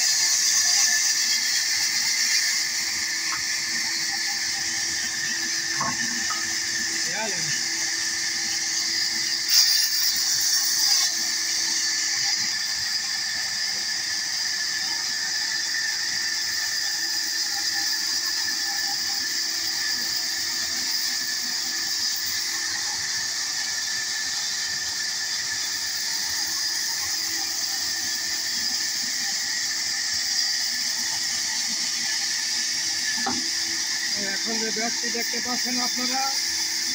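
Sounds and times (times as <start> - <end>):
band saw cutting wood: 0.0 - 36.9.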